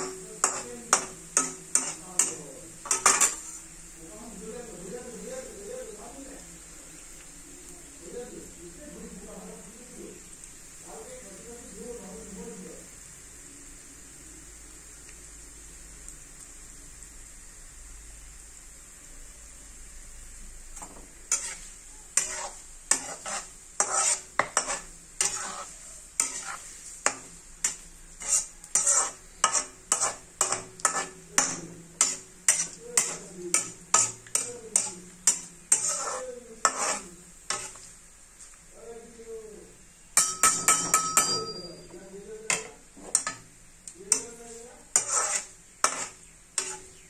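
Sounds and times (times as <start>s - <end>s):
metal spatula scraping a pan: 0.0s - 3.8s, 20.8s - 38.0s, 40.2s - 47.0s
oil sizzling: 0.0s - 47.0s.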